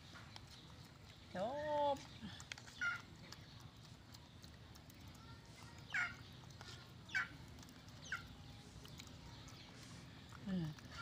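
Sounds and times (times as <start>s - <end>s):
chicken calls: 2.6s - 3.2s, 5.8s - 8.4s.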